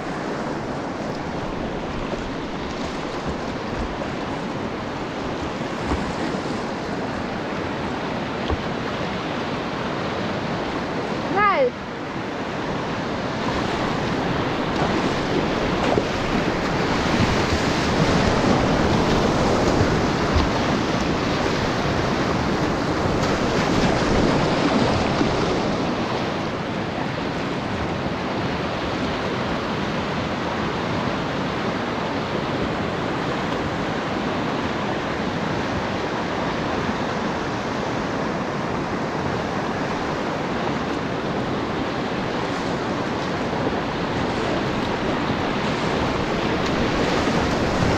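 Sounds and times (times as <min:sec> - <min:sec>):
whitewater rushing: 0:00.0 - 0:47.9.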